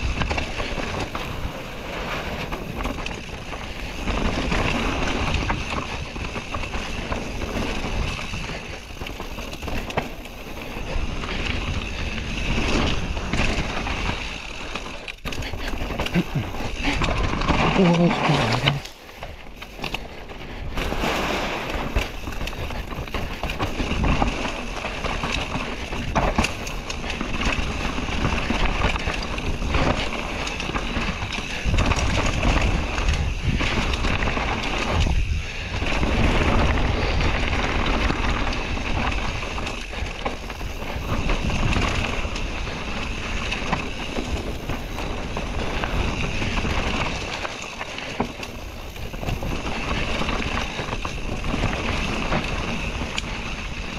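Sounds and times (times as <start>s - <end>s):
bike tyres clattering on rough ground: 0.0s - 53.9s
wind buffeting microphone: 25.1s - 47.5s.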